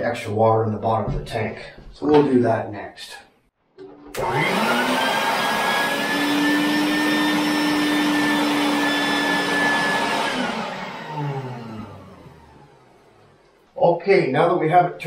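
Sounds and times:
shop vac motor whining: 0:04.1 - 0:13.7.

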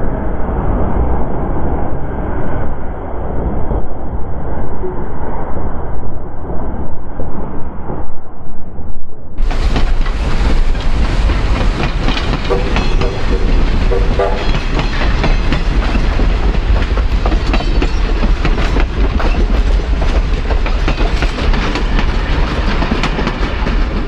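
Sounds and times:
deep train rumble: 0:00.0 - 0:24.0
train wheels clickety-clack on rails: 0:09.4 - 0:24.0.

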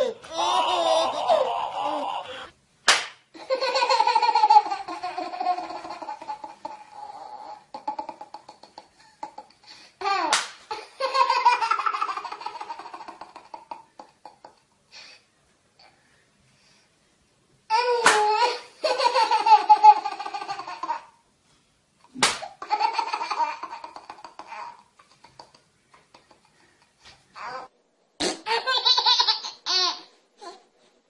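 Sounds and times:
baby giggling: 0:03.4 - 0:14.6, 0:17.7 - 0:21.1, 0:22.5 - 0:26.6, 0:28.3 - 0:30.6.

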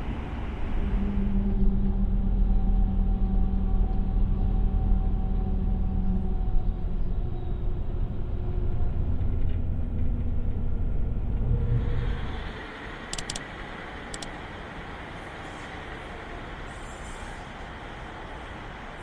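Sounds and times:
vehicle rumble: 0:00.0 - 0:19.0
sharp clicks: 0:13.1 - 0:13.4, 0:14.1 - 0:14.3.

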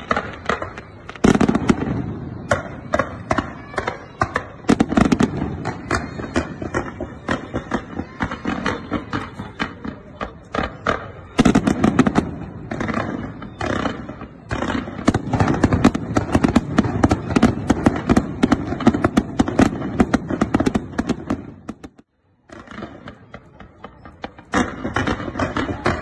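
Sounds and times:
fireworks crackling and banging: 0:00.0 - 0:26.0.

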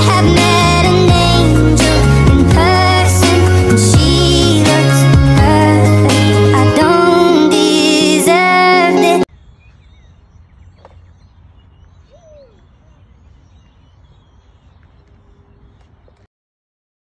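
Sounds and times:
birds chirping: 0:09.3 - 0:16.3.

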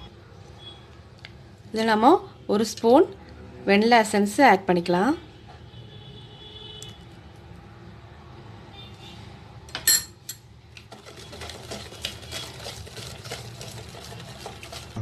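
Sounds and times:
whisk beating batter in plastic bowl: 0:10.8 - 0:15.0.

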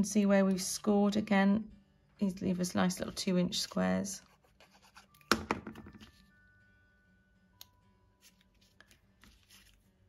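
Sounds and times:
paper card rustling and tapping: 0:04.6 - 0:06.2, 0:08.2 - 0:09.8.

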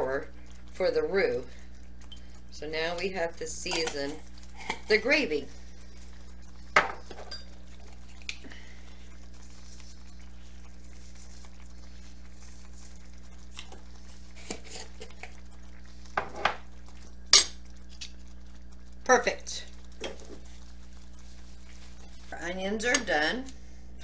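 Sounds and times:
steady low hum: 0:00.0 - 0:24.0
spoon clinking on jar and skillet: 0:06.8 - 0:07.5.

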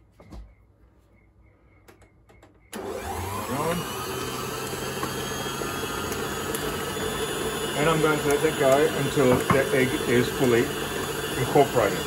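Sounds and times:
stand mixer motor running: 0:02.7 - 0:12.0.

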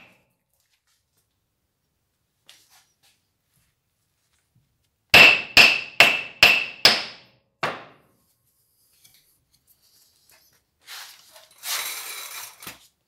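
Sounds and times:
metal parts scraping: 0:10.0 - 0:12.8.

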